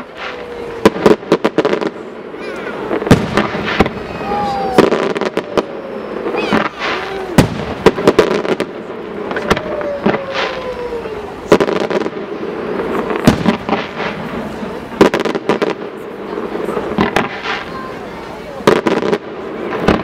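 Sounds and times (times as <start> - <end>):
firework shells bursting: 2.7 - 16.0
falling whistling tone: 4.0 - 7.4.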